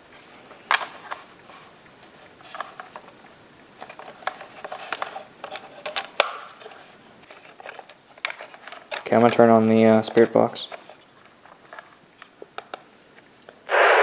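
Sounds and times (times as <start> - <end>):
light rustling and clattering: 3.8 - 12.9.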